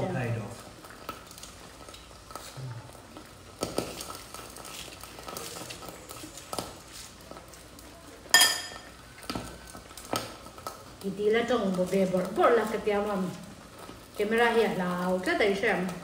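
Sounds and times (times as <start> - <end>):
metal cutlery clinking on dish: 8.3 - 8.9
cutlery clicking on dishes: 8.4 - 8.9.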